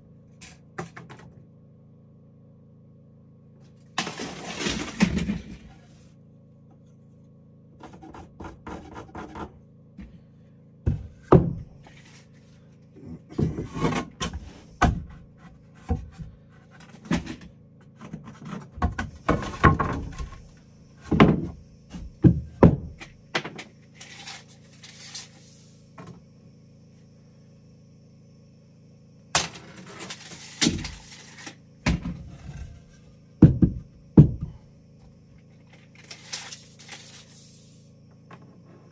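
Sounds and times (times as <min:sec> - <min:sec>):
faint low hum: 0:00.0 - 0:38.9
knocks and thuds of woodwork: 0:10.8 - 0:12.0, 0:13.1 - 0:23.7, 0:30.6 - 0:31.0, 0:31.8 - 0:34.6
short scraping noises: 0:24.0 - 0:25.8, 0:36.0 - 0:37.9.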